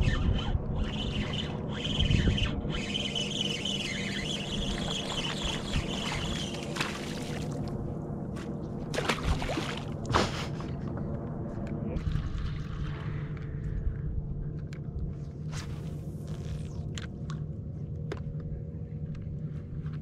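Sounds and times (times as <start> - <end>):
fishing reel drag squealing: 0.0 - 6.8
steady low hum: 0.0 - 20.0.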